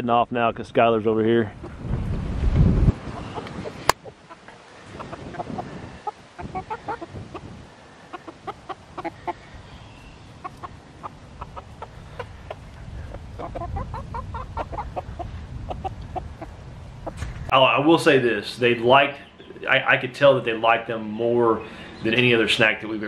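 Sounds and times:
chickens clucking: 2.6s - 17.5s.

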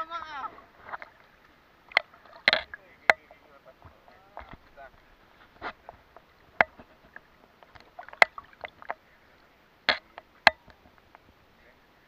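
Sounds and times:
seawater lapping and splashing: 0.0s - 12.0s
sharp slaps of water: 1.8s - 3.3s, 7.6s - 9.0s, 9.9s - 10.9s.

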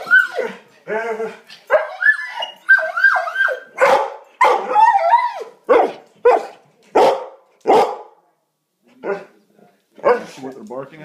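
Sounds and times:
dog yowling: 0.0s - 6.5s
dog barking loudly: 3.8s - 4.9s, 5.7s - 8.1s, 10.0s - 10.4s.

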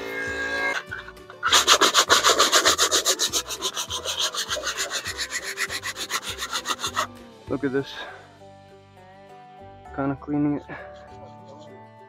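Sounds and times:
stiff brush scrubbing steel: 0.7s - 7.2s.

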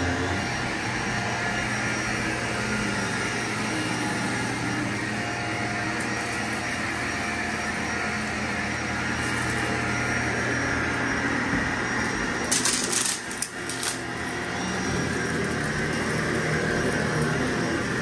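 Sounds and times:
vacuum cleaner running: 0.0s - 18.0s
sharp crackling rattles: 12.5s - 14.0s.

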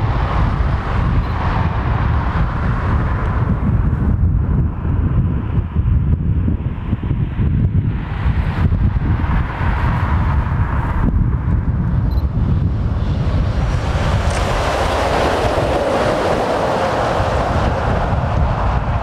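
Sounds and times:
wind buffeting microphone: 0.0s - 19.0s
lorry passing: 13.2s - 19.0s.

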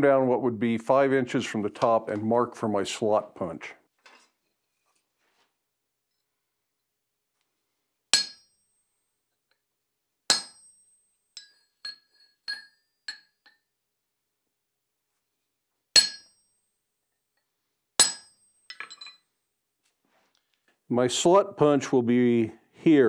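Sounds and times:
hammer striking metal punch: 8.2s - 8.6s, 10.3s - 10.8s, 16.0s - 16.4s, 18.0s - 19.0s
light metal clinks: 11.4s - 13.7s.

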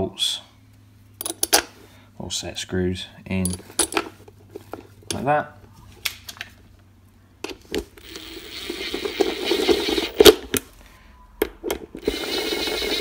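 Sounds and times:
cordless drill running: 8.0s - 10.4s, 12.0s - 13.0s.

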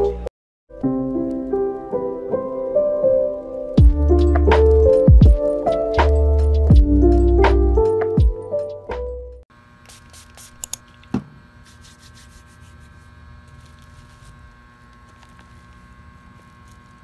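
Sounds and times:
music track: 0.0s - 9.4s
steady electrical hum: 9.5s - 17.0s.

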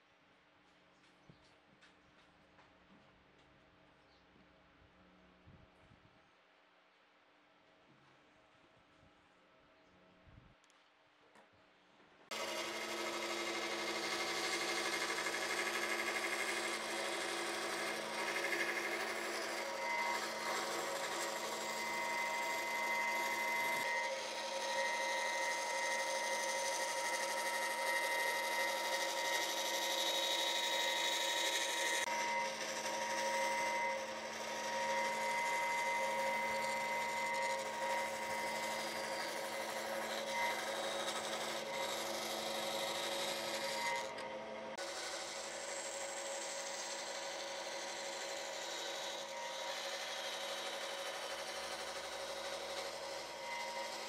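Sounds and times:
bandsaw humming and whining: 12.3s - 54.0s.

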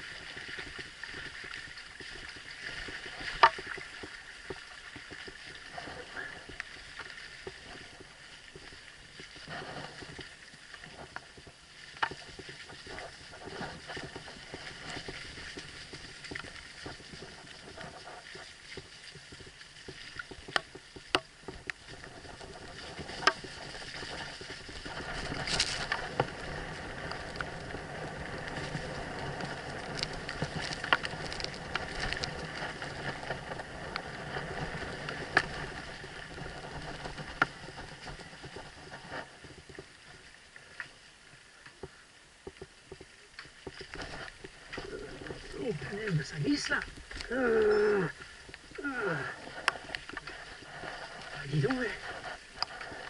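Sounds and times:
bike tyre noise: 7.1s - 40.2s.

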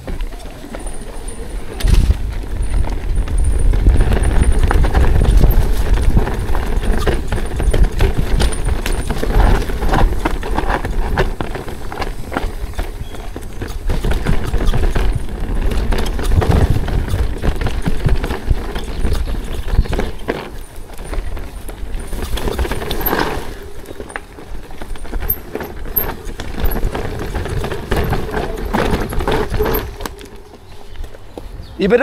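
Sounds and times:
bike rattling over rocks: 0.0s - 31.2s
wind rumble on microphone: 0.8s - 23.2s.

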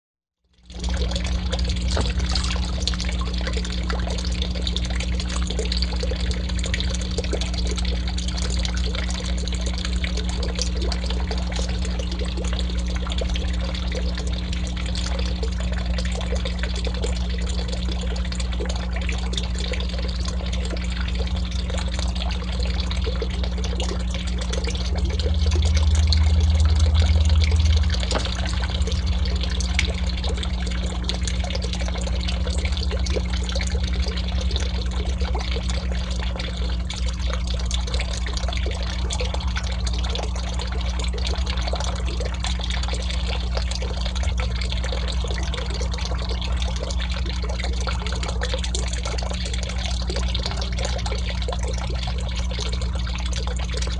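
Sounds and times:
water trickling into pond: 0.4s - 53.9s
low steady hum: 0.5s - 53.9s
low rumble: 23.5s - 33.5s.

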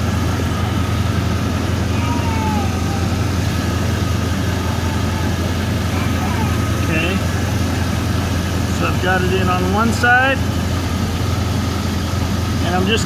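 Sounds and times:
thin steady whine: 0.0s - 13.0s
truck engine idling: 0.0s - 13.0s.

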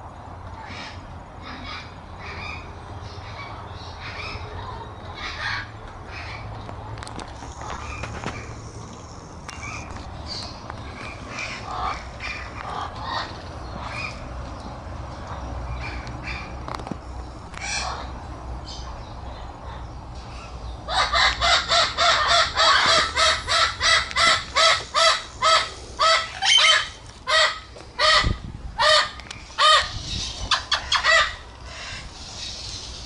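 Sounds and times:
parrot calling loudly: 20.9s - 32.1s.

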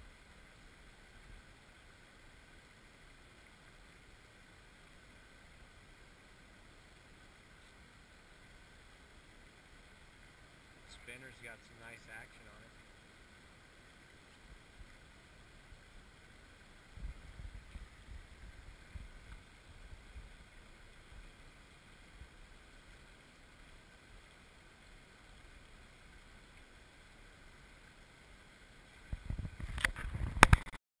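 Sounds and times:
shallow river flowing: 0.0s - 30.7s
wind rumbling on microphone: 16.9s - 20.5s, 29.1s - 30.8s
knocks and rubbing on microphone: 29.1s - 30.7s.

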